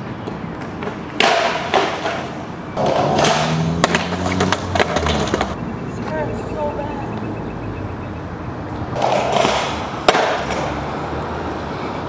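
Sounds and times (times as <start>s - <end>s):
skateboard clattering: 0.0s - 5.6s, 8.9s - 10.8s
skateboard wheels rolling: 0.0s - 5.6s, 8.7s - 12.0s
skateboard slamming: 0.8s - 5.5s, 8.9s - 10.8s.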